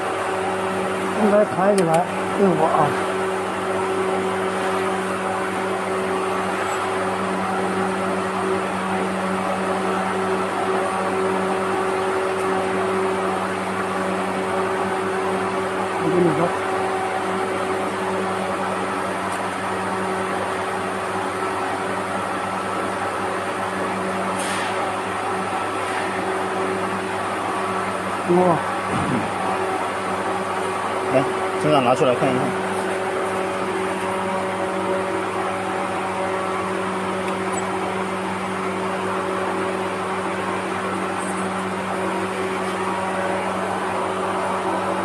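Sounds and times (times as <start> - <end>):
welder electrical hum: 0.0 - 45.0.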